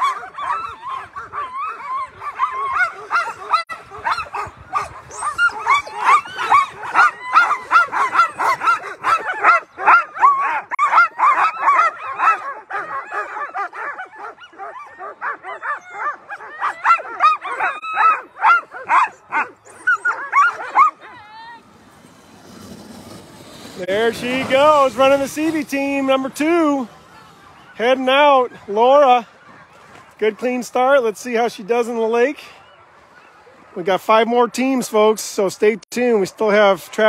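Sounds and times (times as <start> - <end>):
sled dogs barking and yelping: 0.0 - 37.0.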